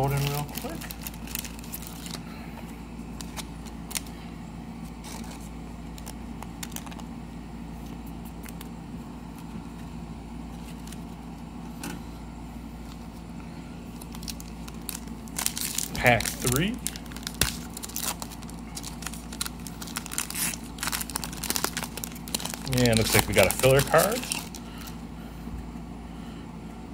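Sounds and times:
card in plastic sleeve handled: 0:00.0 - 0:02.2, 0:03.1 - 0:04.1, 0:04.8 - 0:11.4, 0:13.9 - 0:25.0
steady low hum: 0:00.0 - 0:26.9.

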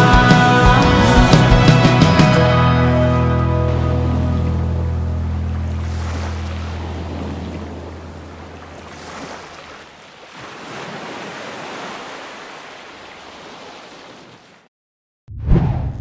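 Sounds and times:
surf washing up beach: 0:04.0 - 0:14.7.

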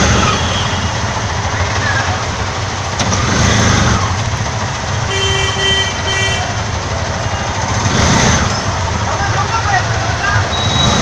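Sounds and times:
vehicle engine running: 0:00.0 - 0:11.0
horn beeping: 0:05.0 - 0:06.8.

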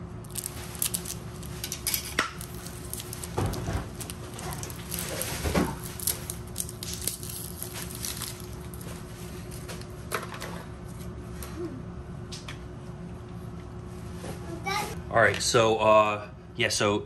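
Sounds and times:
thin plastic crinkling: 0:00.2 - 0:09.7.

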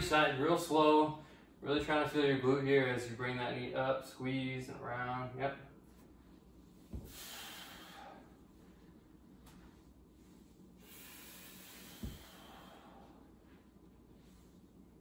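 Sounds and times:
person breathing heavily: 0:06.9 - 0:09.2, 0:10.5 - 0:13.5.

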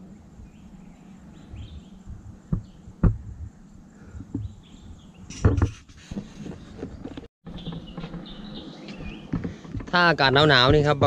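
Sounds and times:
dull thumps on microphone: 0:02.5 - 0:03.4, 0:05.3 - 0:11.0.

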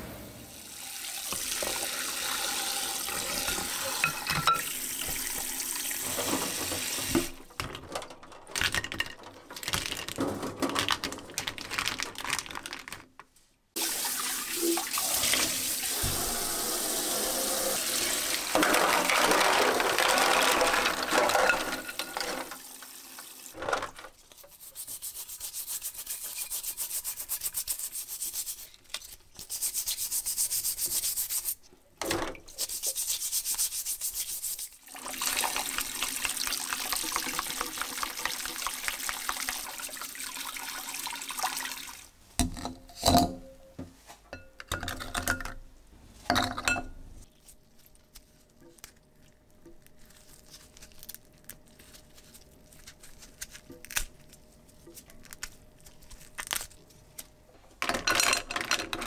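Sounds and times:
toothbrush scrubbing shells: 0:24.2 - 0:31.6, 0:32.5 - 0:34.8.

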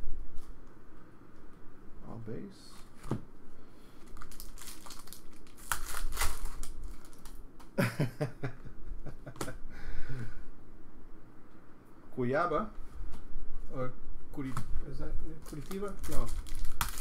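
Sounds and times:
cards snapping and rustling: 0:04.1 - 0:07.8, 0:15.4 - 0:17.0.

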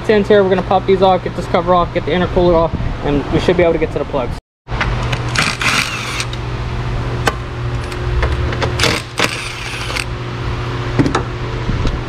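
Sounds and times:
steady low hum: 0:00.0 - 0:12.0
cordless power tool spinning: 0:05.2 - 0:06.4, 0:08.8 - 0:10.1.

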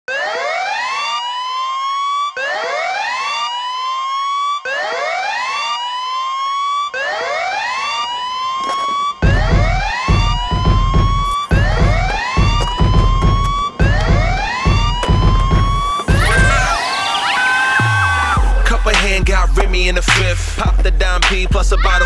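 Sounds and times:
police siren sweeping up: 0:00.1 - 0:18.7
heavy bass beat: 0:09.2 - 0:16.8, 0:17.8 - 0:22.0.

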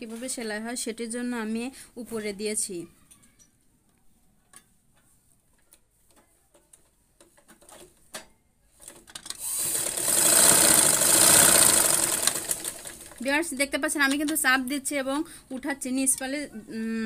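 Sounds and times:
electric sewing machine running: 0:09.4 - 0:13.2.

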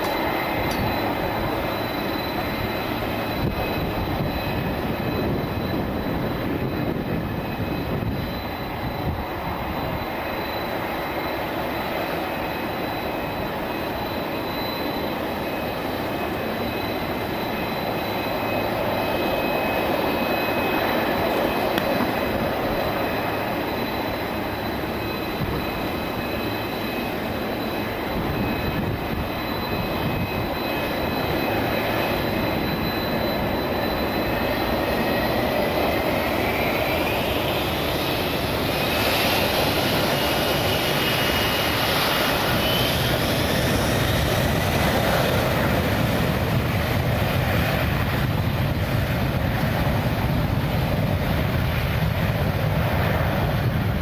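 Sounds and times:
jet engines whining: 0:00.0 - 0:54.0.

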